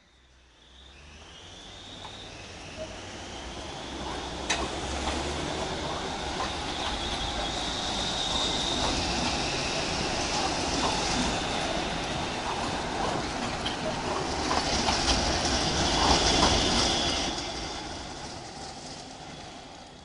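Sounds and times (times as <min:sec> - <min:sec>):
wheels squealing on rails: 0:00.1 - 0:20.0
tram passing: 0:00.2 - 0:20.0
wheels clicking over track: 0:04.0 - 0:19.0.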